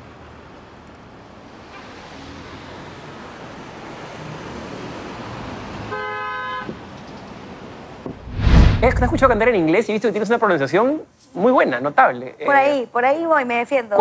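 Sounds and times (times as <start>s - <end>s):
whooshing riser: 8.1s - 9.6s.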